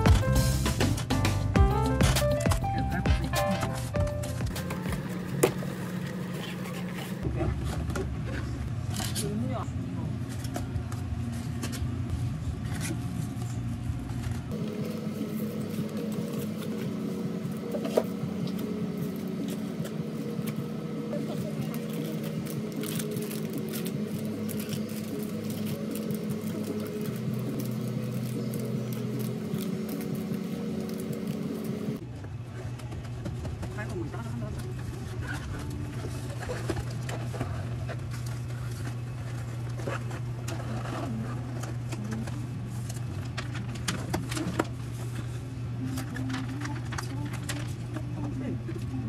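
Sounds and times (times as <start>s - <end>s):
steady low hum: 0.0s - 49.0s
plastic wrapper crinkling: 21.5s - 32.0s.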